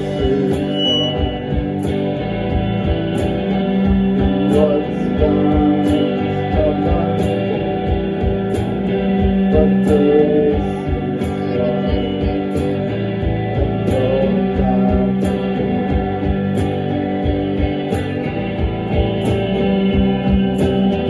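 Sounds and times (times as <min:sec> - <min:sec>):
person singing: 0:00.0 - 0:01.6, 0:04.0 - 0:08.2, 0:09.2 - 0:16.3
live rock band playing: 0:00.0 - 0:21.0.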